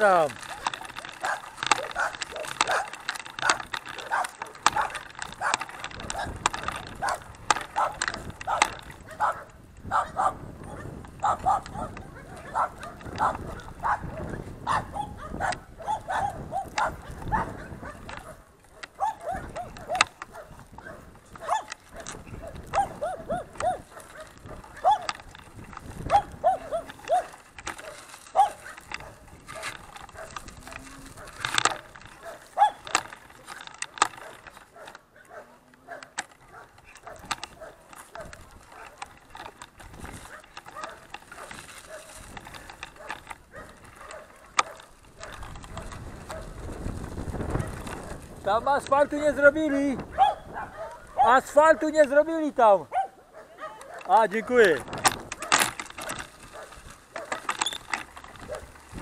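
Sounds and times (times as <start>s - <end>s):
bicycle chain ticking: 0.0s - 59.0s
tyres rumbling on dirt road: 0.0s - 59.0s
dog barking: 1.2s - 6.3s, 7.8s - 25.1s, 26.1s - 30.4s, 31.7s - 32.9s, 34.2s - 39.0s, 40.3s - 42.1s, 43.0s - 45.4s, 50.1s - 51.8s, 52.9s - 54.6s.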